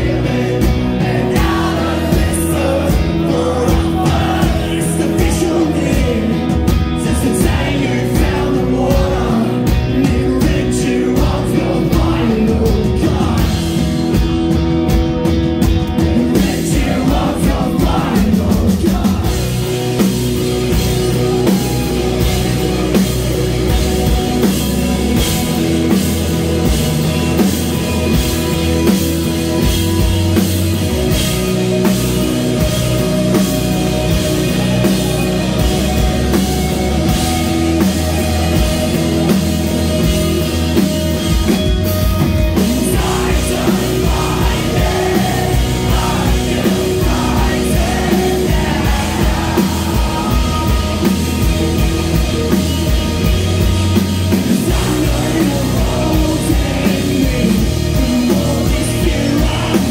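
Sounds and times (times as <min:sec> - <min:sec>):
person singing: 0:00.0 - 0:13.9, 0:42.6 - 0:52.1, 0:54.3 - 0:59.9
rock band playing live: 0:00.0 - 0:59.9.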